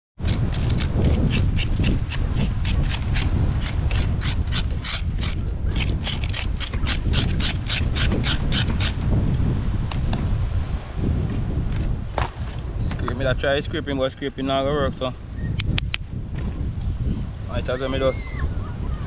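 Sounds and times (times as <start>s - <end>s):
rasping scraping strokes: 0.2s - 9.0s.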